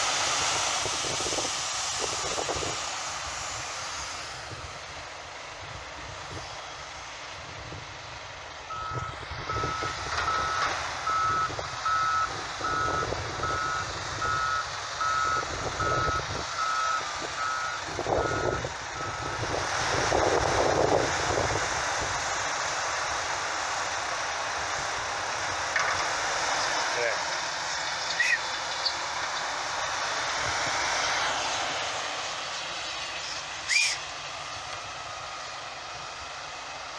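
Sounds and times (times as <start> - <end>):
loud rush of noise: 0.0 - 5.2
diesel engines running: 0.0 - 36.9
reversing alarm beeping: 8.7 - 19.6.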